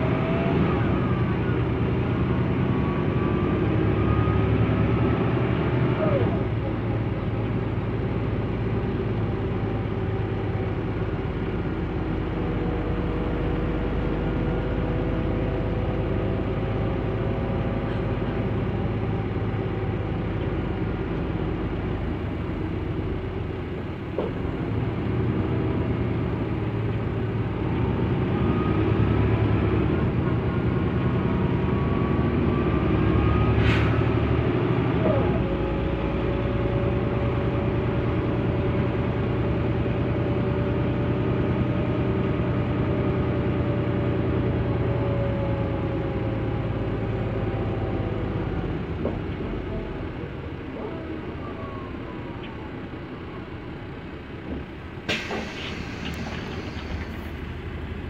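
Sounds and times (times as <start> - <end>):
bus engine running: 0.0 - 58.0
short air hiss: 55.1 - 57.3.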